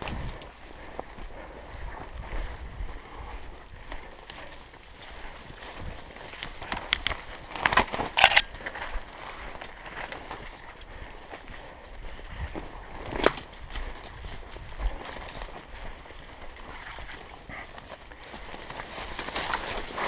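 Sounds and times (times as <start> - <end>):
twigs crackling and snapping: 5.6 - 10.5, 12.5 - 14.1.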